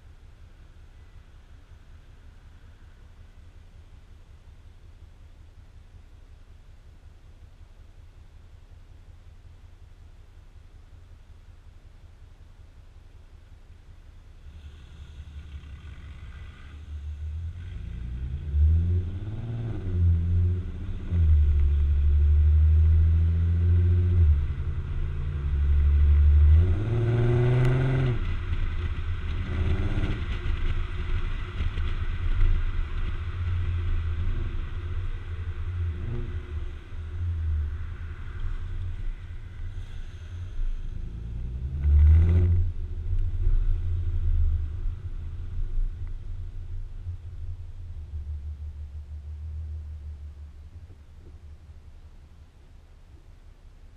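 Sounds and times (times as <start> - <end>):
car exhaust revving: 14.4 - 51.8.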